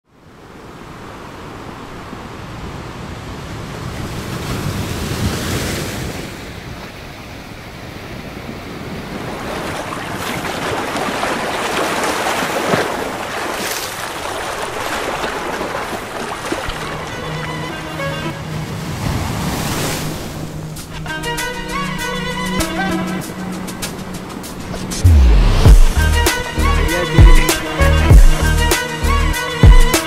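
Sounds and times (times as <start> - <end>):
sea waves breaking on rocks: 2.6 - 21.0.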